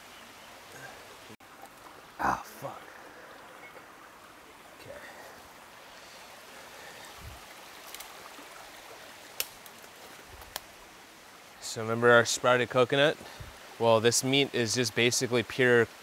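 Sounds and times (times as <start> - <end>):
stream rushing: 0.0 - 16.0
faint sharp clicks: 9.3 - 10.7.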